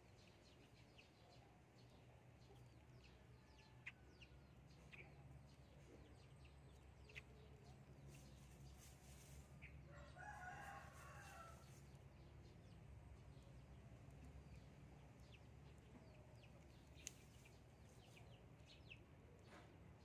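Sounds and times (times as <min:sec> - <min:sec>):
low steady hum: 0:00.0 - 0:20.0
faint rooster crow: 0:03.0 - 0:04.6, 0:09.7 - 0:12.0.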